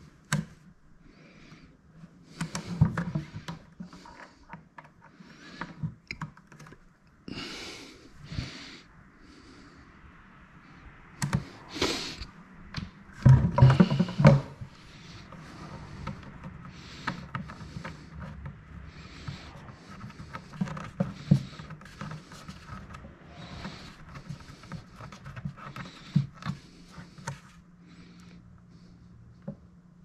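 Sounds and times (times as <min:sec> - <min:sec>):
knocks and clicks of handling: 0:00.0 - 0:00.7, 0:02.3 - 0:06.9, 0:11.2 - 0:27.6.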